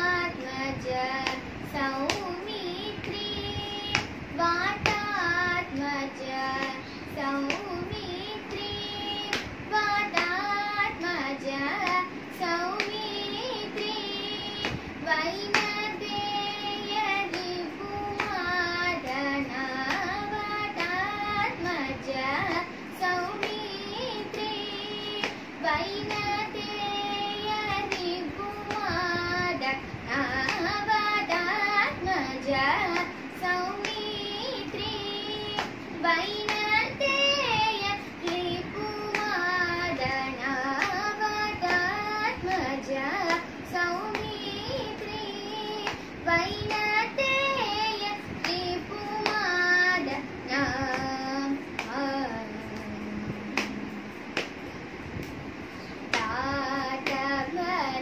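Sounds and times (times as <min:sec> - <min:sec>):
girl singing: 0:00.0 - 0:58.0
hand slapping lap: 0:03.9 - 0:04.2, 0:04.8 - 0:05.9, 0:09.3 - 0:13.1, 0:14.6 - 0:14.9, 0:15.5 - 0:16.6, 0:17.2 - 0:24.6, 0:25.2 - 0:26.9, 0:27.5 - 0:34.9, 0:35.5 - 0:45.2, 0:45.8 - 0:55.4, 0:56.1 - 0:57.7.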